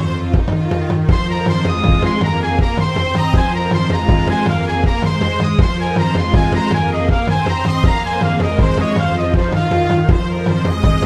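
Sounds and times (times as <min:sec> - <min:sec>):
instrumental folk music: 0:00.0 - 0:11.0.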